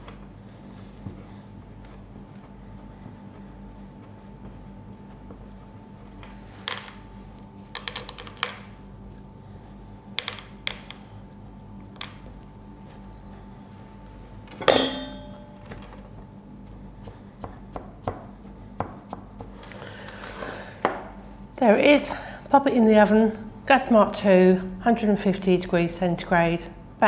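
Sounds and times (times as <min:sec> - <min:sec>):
metallic clink: 0:14.6 - 0:15.6.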